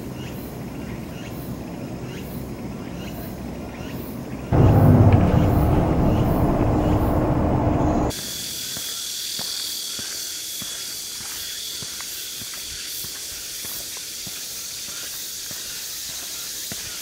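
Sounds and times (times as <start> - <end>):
vehicle rumble: 4.5 - 8.1.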